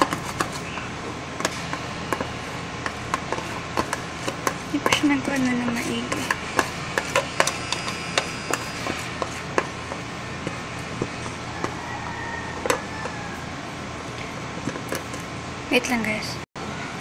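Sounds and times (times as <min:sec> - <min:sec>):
spoon stirring sticky slime: 0:00.0 - 0:13.4.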